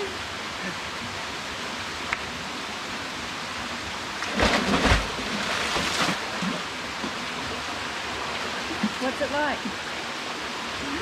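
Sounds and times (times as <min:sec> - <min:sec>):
heavy splash into water: 0:04.2 - 0:06.6.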